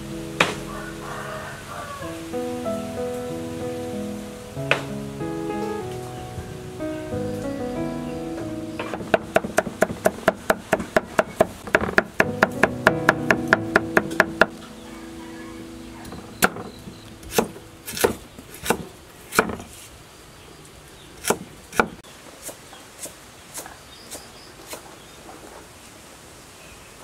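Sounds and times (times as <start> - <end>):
knife chopping on wooden board: 8.8 - 12.6, 17.3 - 19.7.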